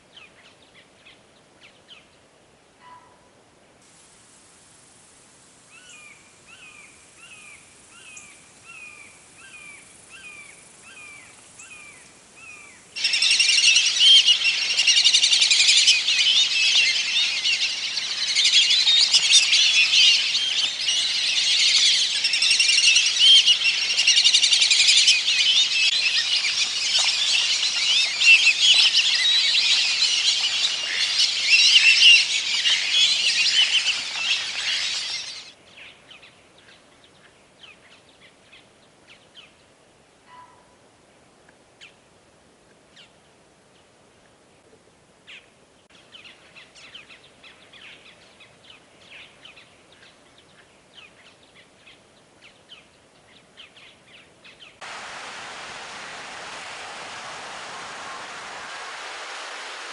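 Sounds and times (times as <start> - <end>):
ducks whistling calls chorus: 13.0 - 35.5.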